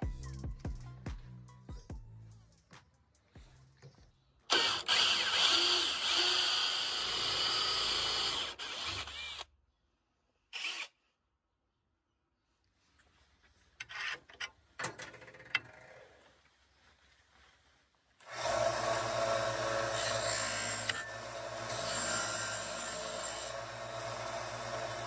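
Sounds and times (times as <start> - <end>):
sander motor hum: 18.3 - 25.0.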